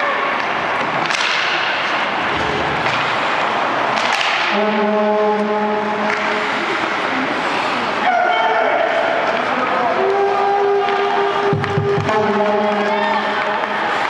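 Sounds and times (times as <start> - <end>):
hockey sticks cracking on puck: 0.4 - 2.2, 2.8 - 4.6, 6.1 - 7.0
low steady horn: 4.5 - 7.0, 9.9 - 13.9.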